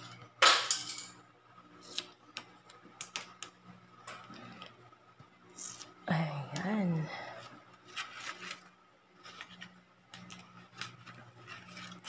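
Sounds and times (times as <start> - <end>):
paper scraping against a wall: 7.8 - 9.7, 10.7 - 12.0.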